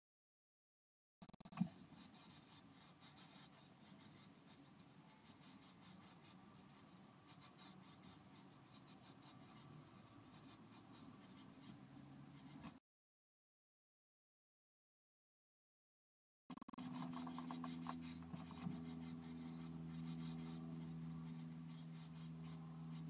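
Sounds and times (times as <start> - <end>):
birds scratching in nest material: 1.3 - 12.8, 16.8 - 23.0
steady low hum: 1.5 - 12.8, 16.7 - 23.0.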